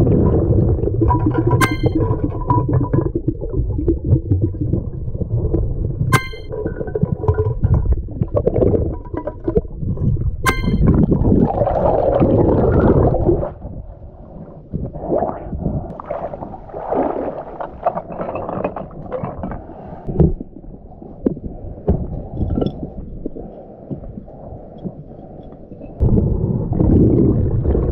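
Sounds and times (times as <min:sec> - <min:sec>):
underwater rumbling and bubbling: 0:00.0 - 0:27.9
water splashing: 0:01.0 - 0:03.7, 0:15.4 - 0:20.0
sharp ringing ping: 0:01.6 - 0:02.0, 0:06.1 - 0:06.6, 0:10.5 - 0:10.9.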